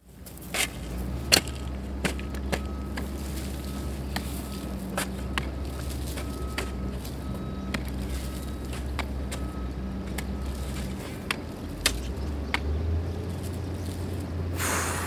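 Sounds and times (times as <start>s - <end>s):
pick and shovel striking earth: 0.3s - 15.0s
burst of hiss: 14.6s - 15.0s.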